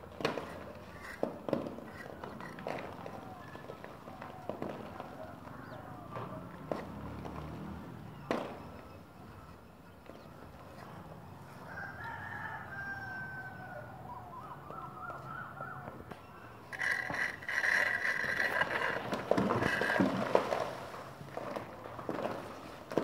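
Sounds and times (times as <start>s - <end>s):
rooster crowing: 11.5s - 15.6s.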